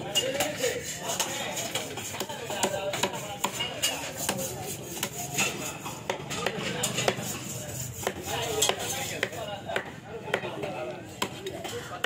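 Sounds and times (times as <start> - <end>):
voices chattering: 0.0 - 12.0
knife chopping on wooden block: 1.7 - 3.6, 4.2 - 5.2, 6.0 - 7.4, 8.0 - 10.5.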